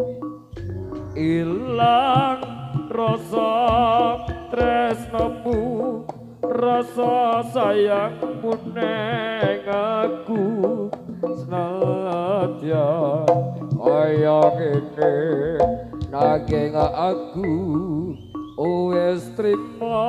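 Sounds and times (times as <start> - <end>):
hand drum strokes: 0.0 - 17.2
low sustained accompaniment: 0.5 - 2.0
person singing with vibrato: 0.7 - 20.0.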